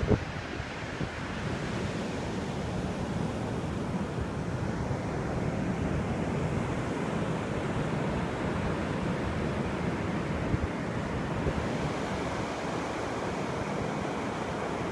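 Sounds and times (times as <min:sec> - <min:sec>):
wind buffeting microphone: 0:00.0 - 0:04.6
ocean surf on shore: 0:00.0 - 0:14.9.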